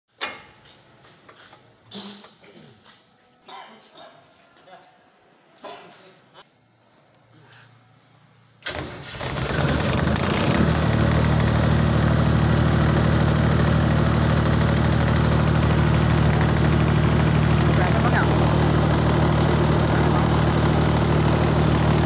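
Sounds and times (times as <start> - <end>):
generator engine starting and running: 8.6 - 22.0.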